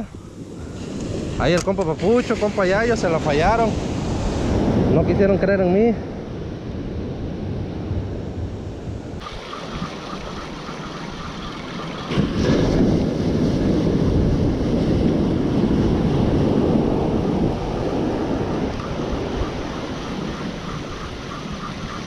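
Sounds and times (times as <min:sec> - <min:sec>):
wind buffeting microphone: 0:00.0 - 0:22.0
surf washing onto beach: 0:09.2 - 0:22.0.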